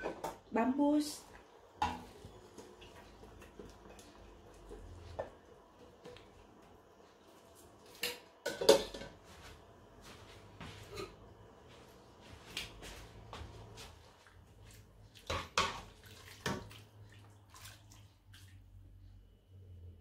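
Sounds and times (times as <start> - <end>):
kitchenware clattering knocks: 8.4 - 9.2.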